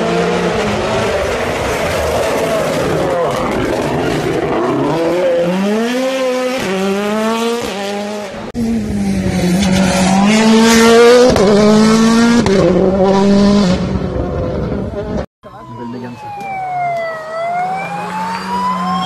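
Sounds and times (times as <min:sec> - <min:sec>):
car revving through upshifts: 0:00.0 - 0:15.2
rally car engine at full throttle: 0:00.0 - 0:15.3.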